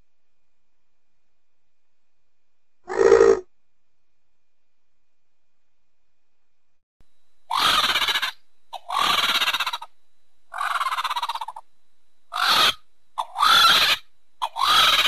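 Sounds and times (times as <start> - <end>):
harsh rattling bird calls: 7.5 - 11.7, 12.3 - 15.0.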